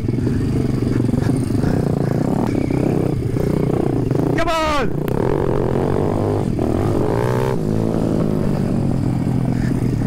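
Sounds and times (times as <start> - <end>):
motorbike engine revving: 0.0 - 10.0.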